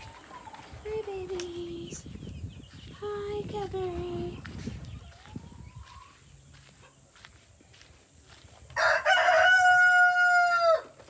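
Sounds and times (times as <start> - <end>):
rooster crowing: 8.8 - 11.0.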